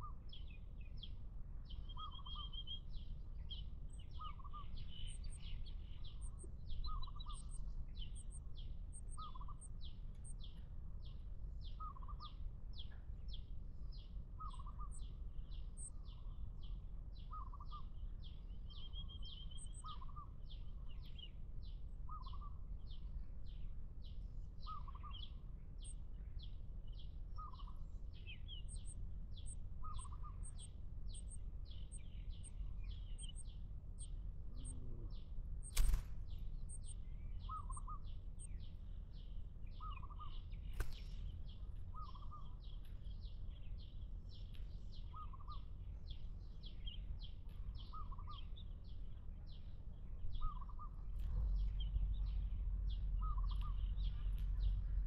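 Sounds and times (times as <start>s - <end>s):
low background rumble: 0.0s - 55.0s
high bird chirps: 28.3s - 34.8s.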